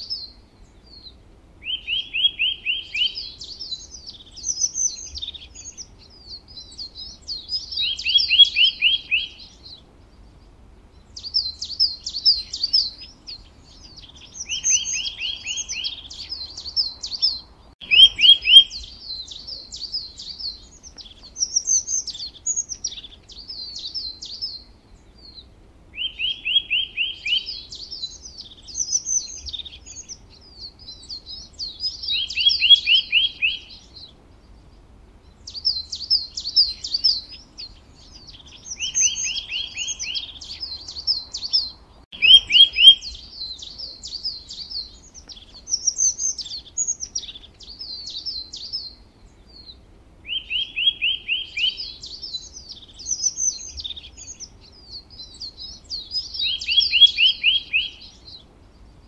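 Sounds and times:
songbirds chirping: 0.0s - 59.0s
fast bird trill: 14.0s - 20.0s, 42.2s - 44.8s.

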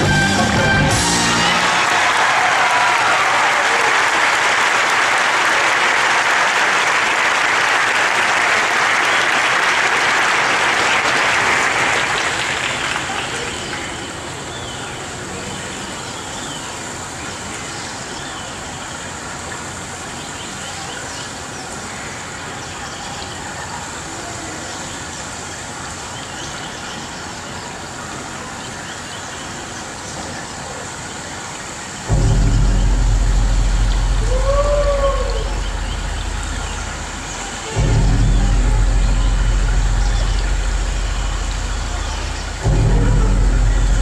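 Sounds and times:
bass-heavy show music: 0.0s - 1.8s, 32.1s - 44.0s
audience hubbub: 0.0s - 16.0s, 30.3s - 44.0s
sliding pitched sound: 32.1s - 44.0s.

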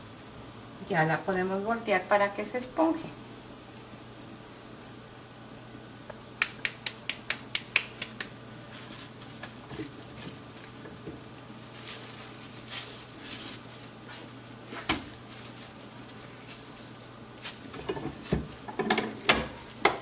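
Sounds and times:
hands slapping dough: 6.4s - 8.4s
soft handling noises: 8.7s - 18.6s.

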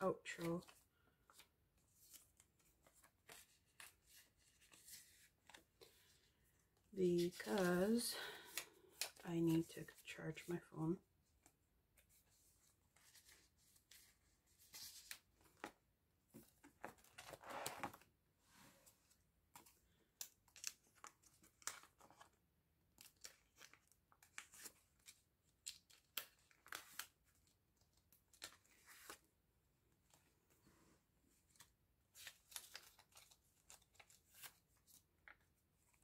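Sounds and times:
plastic card sleeves rustling: 0.3s - 6.5s, 31.5s - 36.0s.

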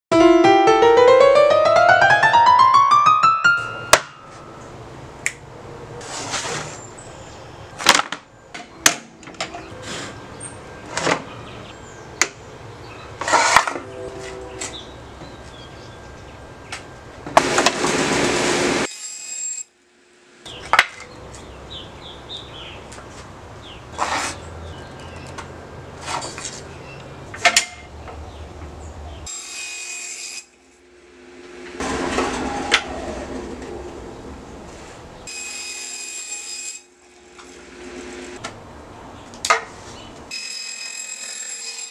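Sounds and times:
keyboard rising notes: 0.0s - 5.0s, 31.8s - 34.8s.

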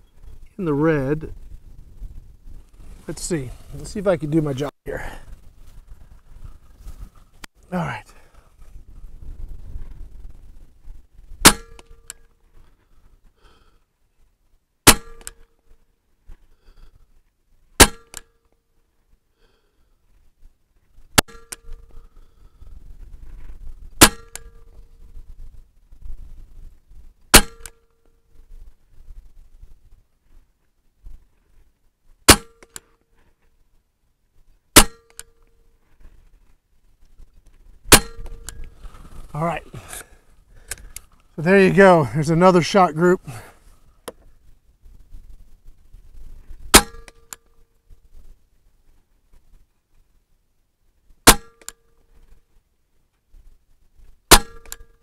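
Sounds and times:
air rifle shots: 11.4s - 12.1s, 17.8s - 18.2s, 24.0s - 24.6s, 27.3s - 27.8s, 37.9s - 38.5s, 46.7s - 47.3s, 54.3s - 54.8s
air rifle shot with ringing: 11.4s - 12.2s, 14.8s - 15.5s, 17.8s - 18.3s, 21.2s - 22.0s, 24.0s - 24.7s, 27.3s - 27.9s, 32.2s - 32.8s, 34.8s - 35.4s, 37.9s - 38.6s, 46.7s - 47.5s, 51.2s - 51.8s, 54.3s - 55.0s.

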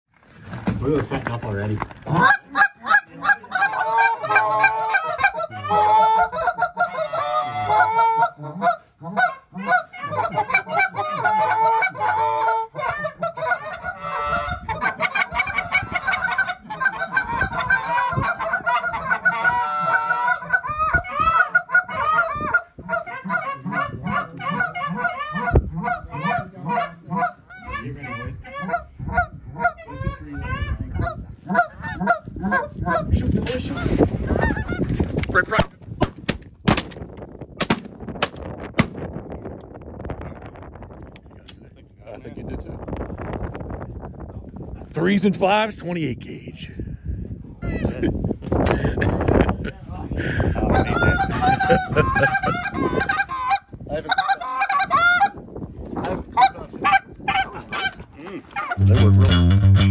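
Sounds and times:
geese honking and clucking: 2.1s - 35.0s, 50.2s - 55.4s, 56.3s - 59.9s.

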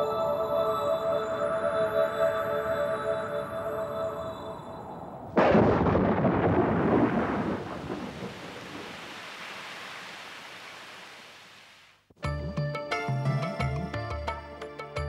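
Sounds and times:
thunder clap rumbling: 4.9s - 9.8s.

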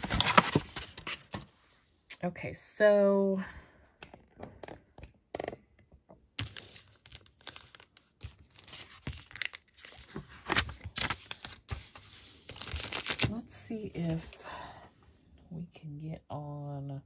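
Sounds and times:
packaging rustling and crinkling: 6.4s - 13.4s.

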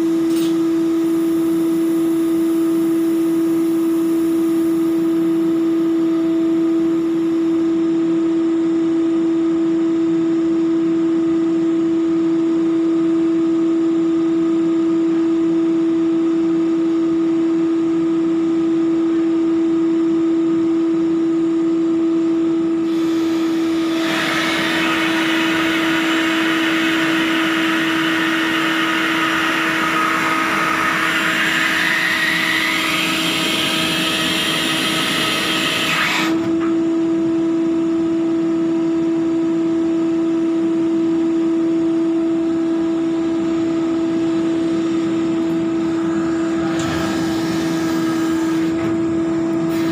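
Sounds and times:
hydraulic power unit humming: 0.0s - 49.9s
hydraulic flow hissing: 22.9s - 36.4s, 45.4s - 49.9s.

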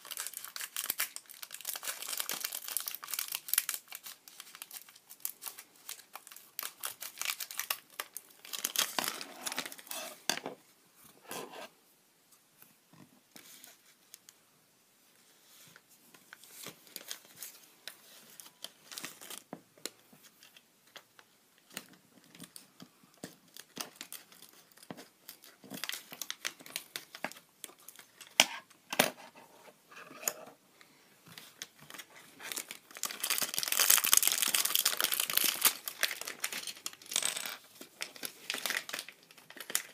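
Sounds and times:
foil packaging crinkling and tearing: 0.0s - 10.0s, 23.4s - 28.4s, 31.3s - 39.9s.

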